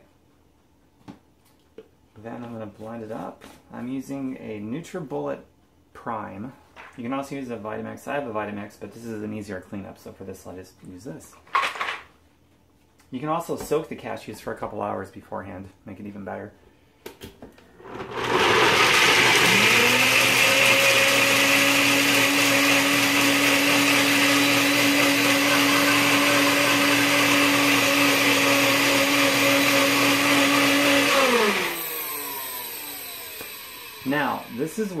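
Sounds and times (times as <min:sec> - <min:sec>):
blender motor running: 0:17.8 - 0:35.0.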